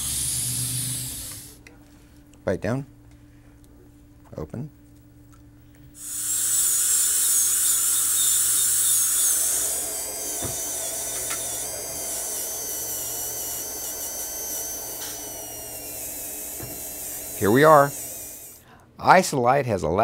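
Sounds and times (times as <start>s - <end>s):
slow-speed dental handpiece running: 0.0s - 1.5s, 6.0s - 18.6s
high-pitched dental drill whine: 0.0s - 1.6s, 6.0s - 18.6s.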